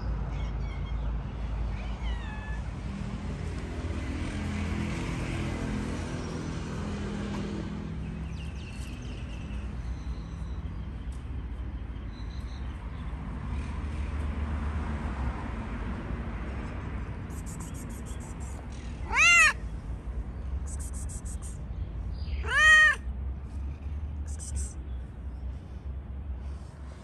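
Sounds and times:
short high chirps: 0:17.3 - 0:18.6, 0:20.7 - 0:21.6, 0:24.3 - 0:24.8
cat meowing: 0:19.0 - 0:19.6, 0:22.4 - 0:23.0.

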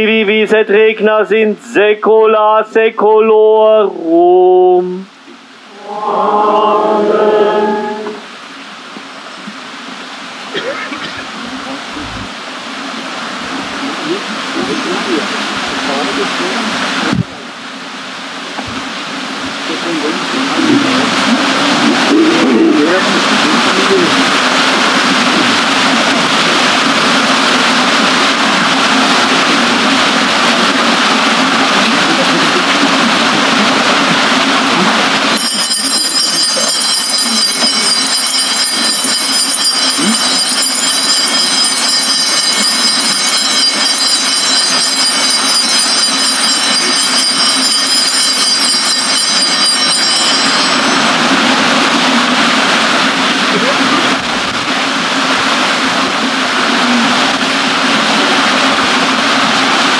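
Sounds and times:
water rushing: 0:05.1 - 0:59.9
high steady squeal: 0:05.6 - 0:09.4, 0:34.0 - 0:52.4.

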